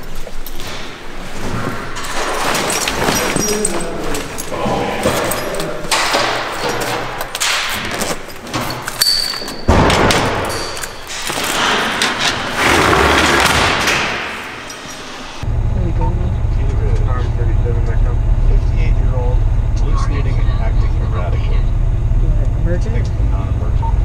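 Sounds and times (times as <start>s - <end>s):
heavy gear rustling and thumps: 0.0s - 15.1s
low rumble: 15.4s - 24.0s.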